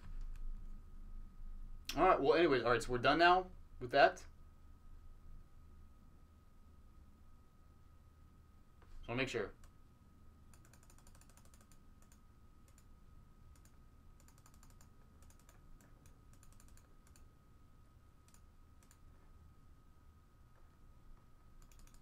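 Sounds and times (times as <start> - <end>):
faint electrical whine: 0.0 - 22.0
typing on computer keyboard: 10.6 - 12.9, 13.6 - 17.2, 21.6 - 22.0.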